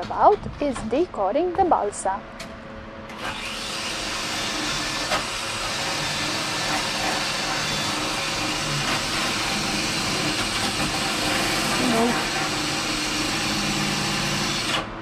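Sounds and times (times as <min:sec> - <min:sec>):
electric power tool cutting: 0:03.1 - 0:15.0.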